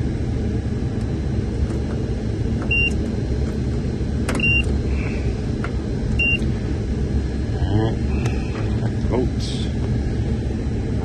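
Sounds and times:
steady low rumble: 0.0s - 11.0s
multimeter high beeps: 2.7s - 3.0s, 4.4s - 4.7s, 6.2s - 6.5s.

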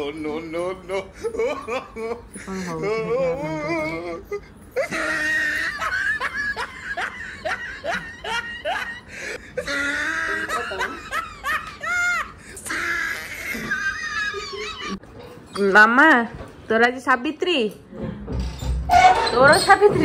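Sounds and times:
hearty human laughter: 4.8s - 15.0s
high-pitched squeal of laughter: 9.6s - 15.0s.

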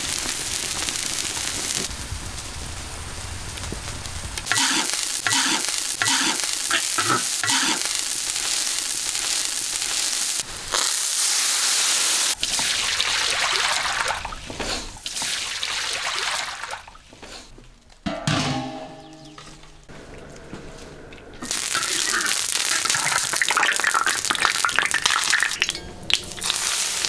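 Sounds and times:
food sizzling in hot oil: 0.0s - 3.3s, 4.4s - 16.2s, 21.4s - 27.0s.

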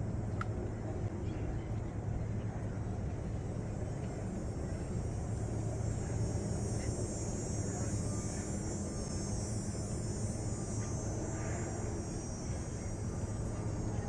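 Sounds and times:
high thin buzz: 6.1s - 14.0s.

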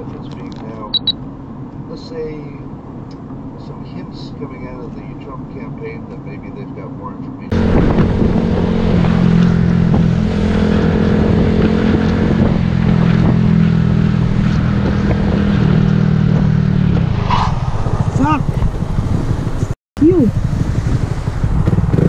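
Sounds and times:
motorcycle engine running: 7.5s - 17.0s, 17.7s - 22.0s.

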